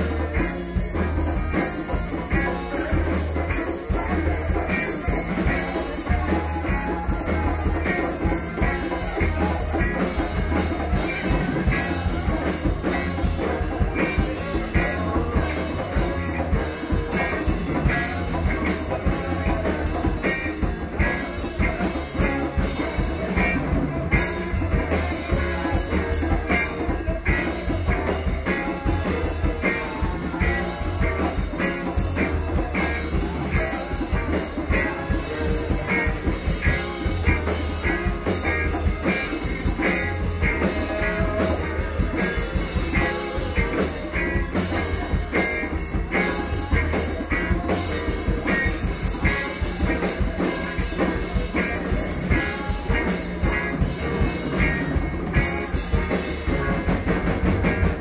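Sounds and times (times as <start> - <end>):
drum kit beat: 0.0 - 58.0
live band playing: 0.0 - 58.0.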